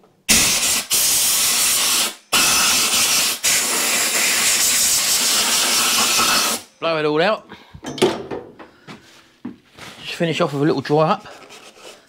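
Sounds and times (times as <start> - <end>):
compressed air blow gun hissing: 0.3 - 6.7.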